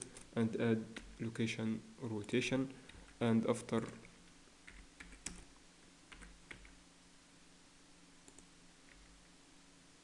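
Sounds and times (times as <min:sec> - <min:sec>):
faint steady hum: 0:00.0 - 0:10.0
keyboard and mouse clicks: 0:03.8 - 0:05.5, 0:06.1 - 0:06.8, 0:08.3 - 0:09.2.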